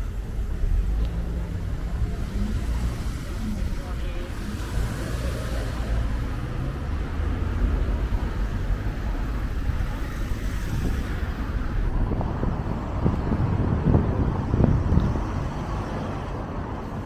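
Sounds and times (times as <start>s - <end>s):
road traffic passing: 0.0s - 17.0s
wind buffeting microphone: 7.4s - 17.0s.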